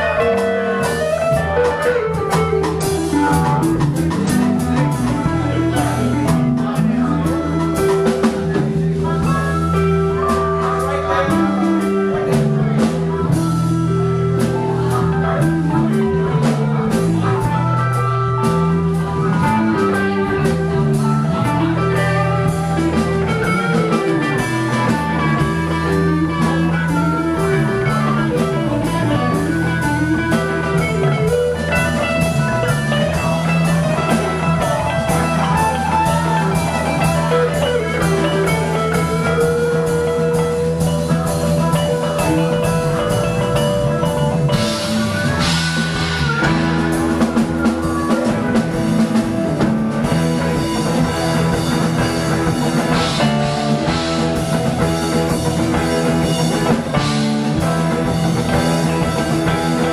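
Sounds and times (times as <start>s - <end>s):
bass: 0.0s - 59.9s
drum kit: 0.0s - 59.9s
electric guitar: 0.0s - 59.9s
keyboard: 0.0s - 59.9s.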